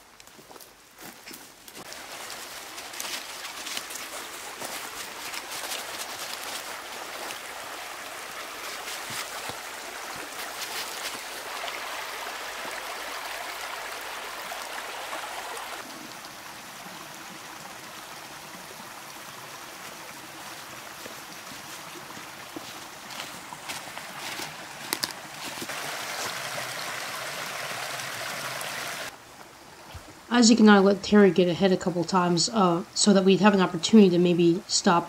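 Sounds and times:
creek running over rocks: 0.0s - 35.0s.

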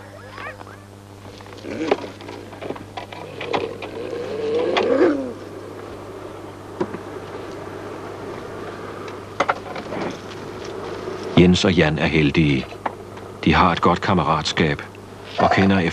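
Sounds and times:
sled dogs whining: 0.0s - 5.8s.

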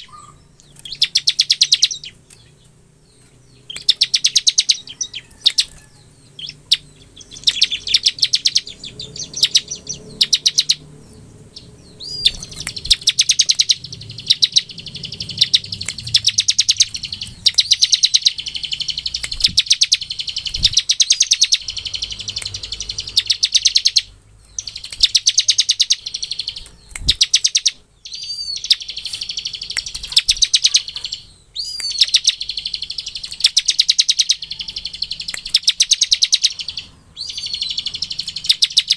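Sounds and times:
bird trilling song: 0.0s - 38.9s
rising bird whistle: 11.5s - 38.9s.

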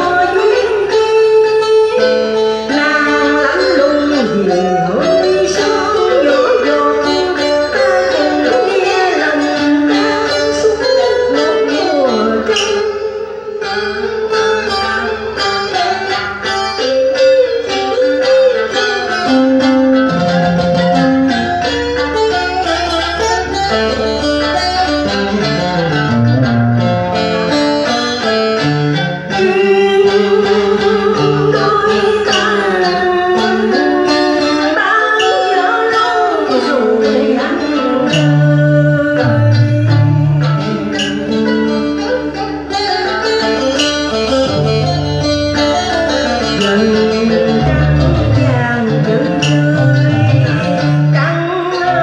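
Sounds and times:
woman singing: 0.0s - 13.8s, 29.3s - 43.4s, 46.2s - 52.0s
electric guitar: 0.0s - 52.0s
plucked lute: 0.0s - 52.0s.

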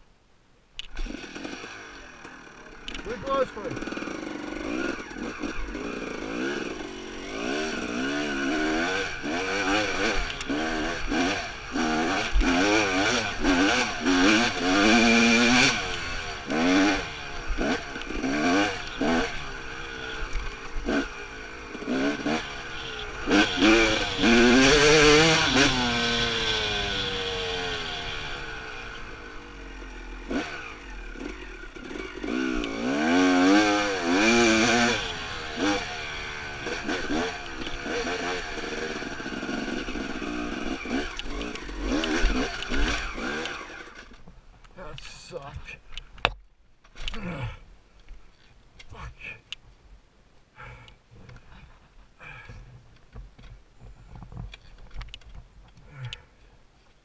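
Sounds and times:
dirt bike engine revving: 0.8s - 44.2s.

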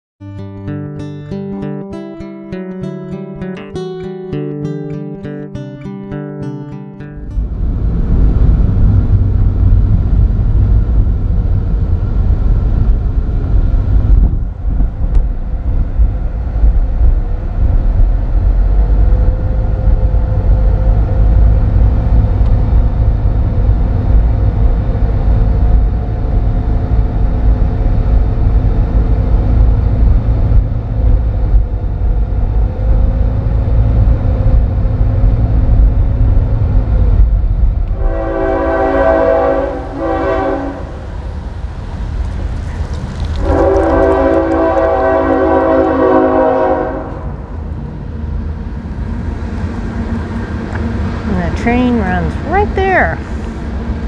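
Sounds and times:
wind and road noise in car: 7.2s - 54.0s.

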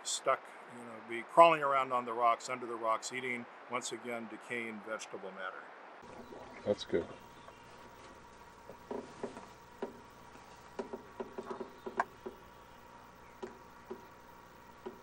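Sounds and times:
thin steady hum: 5.8s - 15.0s.

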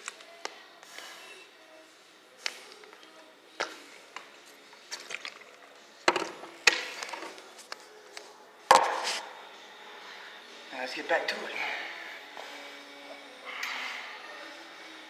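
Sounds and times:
plastic bottle and phone handling: 4.8s - 7.8s.

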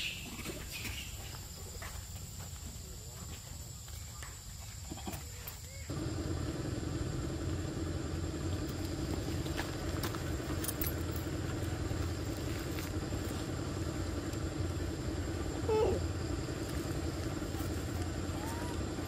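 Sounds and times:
low engine hum: 5.9s - 19.0s.

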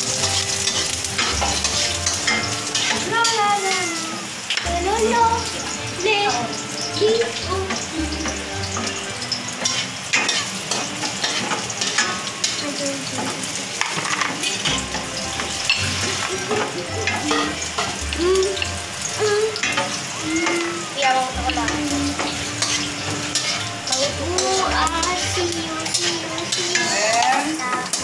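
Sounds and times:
wooden spatula scraping pan: 0.0s - 3.5s, 21.4s - 28.0s
food sizzling in a wok: 0.0s - 28.0s.

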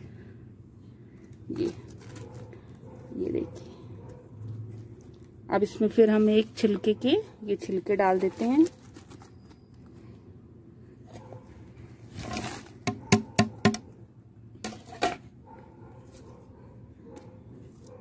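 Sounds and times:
dry peels rustling: 1.2s - 5.5s, 7.8s - 10.2s.

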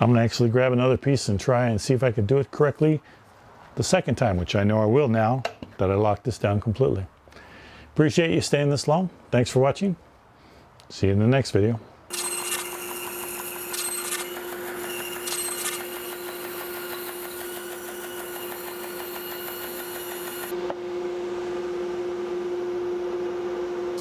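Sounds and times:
saw blade cutting log: 12.1s - 20.5s
band saw humming: 12.1s - 22.6s.

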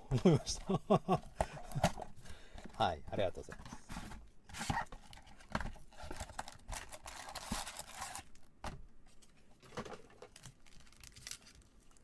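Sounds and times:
packaging rustling and scraping: 3.2s - 8.4s.

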